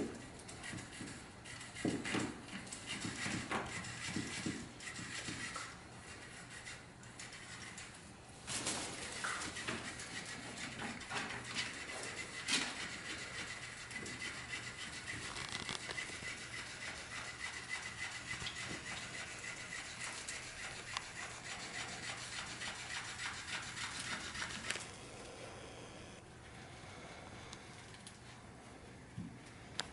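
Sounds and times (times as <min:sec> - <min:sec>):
puppy chewing fabric toy: 0:11.8 - 0:25.0.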